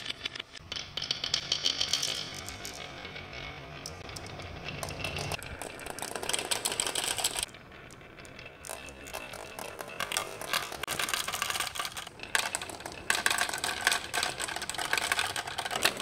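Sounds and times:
marbles clattering down a track: 0.0 - 16.0.

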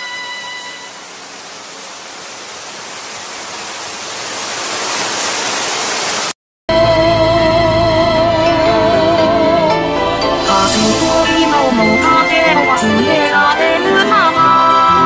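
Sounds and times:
rushing hiss of noise: 0.0 - 6.4, 10.5 - 13.6.

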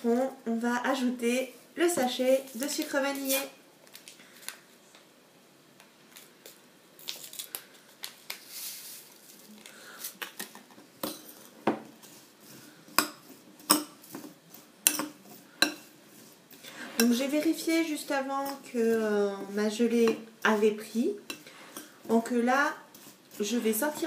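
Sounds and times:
paper sachet tearing and rustling: 7.0 - 10.2
spoon stirring fruit in glass bowl: 11.0 - 24.0.

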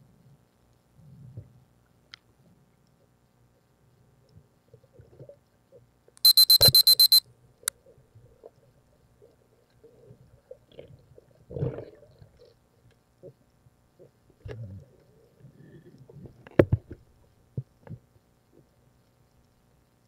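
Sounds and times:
rapid high electronic beeps: 6.2 - 7.2
sharp click: 6.2 - 7.2.

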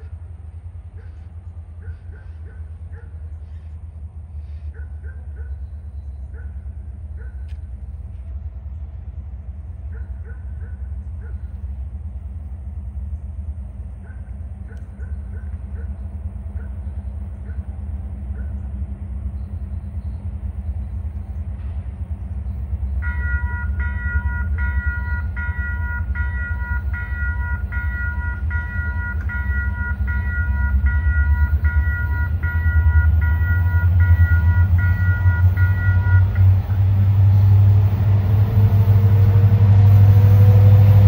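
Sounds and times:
locomotive deep rumble: 0.0 - 41.0.

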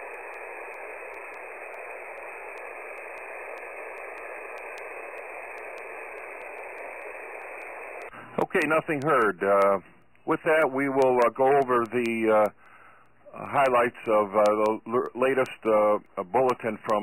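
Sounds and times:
radio static hiss: 0.0 - 17.0.

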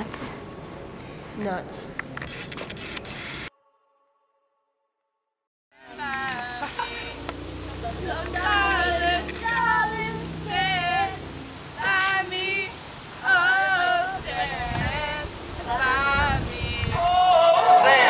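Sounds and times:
girl singing unaccompanied: 5.8 - 17.2.

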